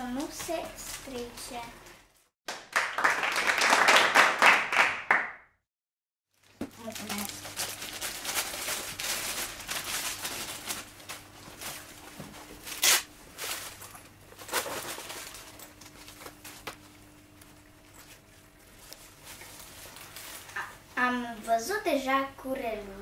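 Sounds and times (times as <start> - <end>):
plastic tearing: 6.4 - 11.9, 12.6 - 13.8, 14.4 - 16.8
plastic bag crinkling: 6.4 - 16.8, 17.9 - 20.8.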